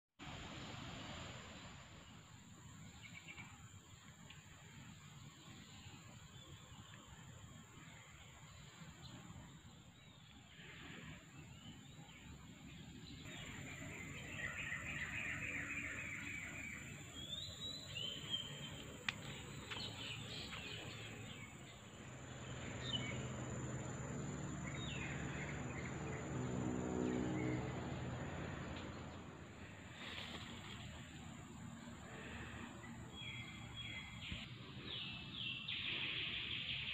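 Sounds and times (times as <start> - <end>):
high insect whine: 10.5 - 36.9
low motor hum: 12.1 - 35.2.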